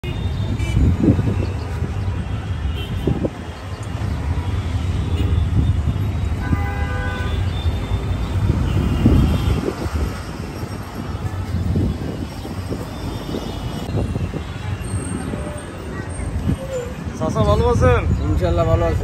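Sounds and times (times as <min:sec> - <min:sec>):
street traffic rumble: 0:00.0 - 0:19.0
vehicle horn honking: 0:06.4 - 0:09.8.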